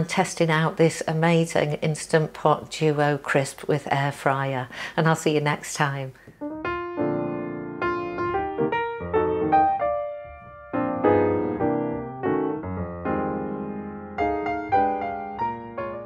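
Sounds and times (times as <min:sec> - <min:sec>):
piano music: 0:06.4 - 0:16.0.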